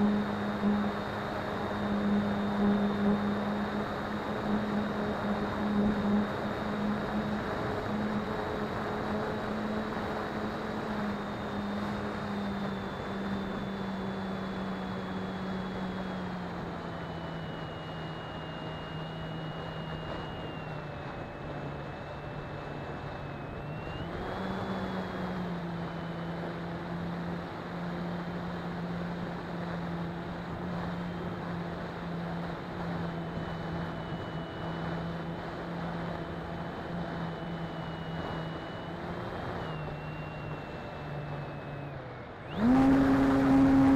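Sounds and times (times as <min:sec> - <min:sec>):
model plane motor whine: 0:00.0 - 0:43.9.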